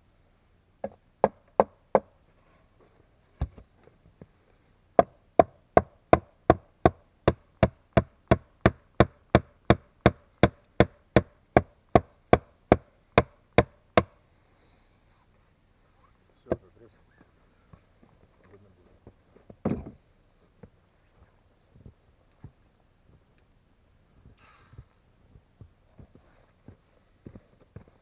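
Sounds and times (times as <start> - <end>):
hatchet striking wood: 0.8 - 2.1, 5.0 - 14.2.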